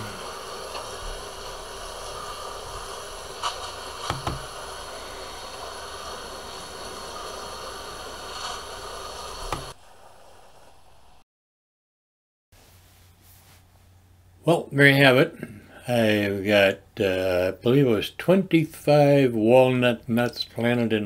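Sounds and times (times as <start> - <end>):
hose spraying water on soil: 0.0 - 11.0.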